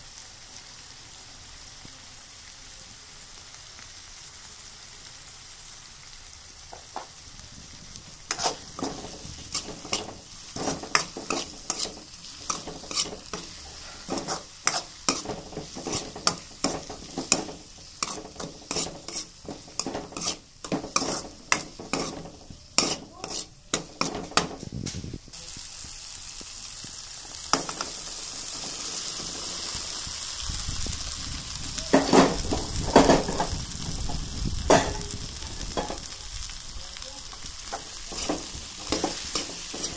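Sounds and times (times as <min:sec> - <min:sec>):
food sizzling in a pan: 0:00.0 - 0:39.9
spoon stirring and scraping pan: 0:08.1 - 0:25.1, 0:27.4 - 0:29.8, 0:31.9 - 0:36.1, 0:37.3 - 0:39.9
vegetables clattering into pan: 0:08.2 - 0:25.0, 0:27.3 - 0:29.8, 0:31.9 - 0:36.2, 0:37.3 - 0:39.9
spoon tapping on pan: 0:35.8 - 0:36.1.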